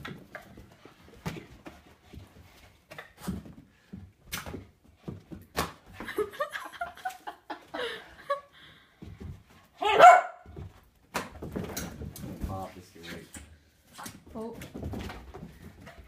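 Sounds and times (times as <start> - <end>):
puppy batting a balloon: 2.9 - 6.0.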